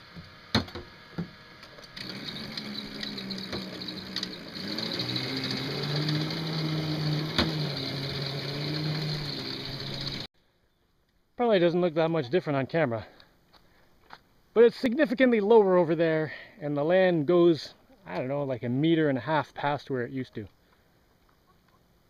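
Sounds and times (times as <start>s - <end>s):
electric motor humming with whine: 0.0s - 10.3s.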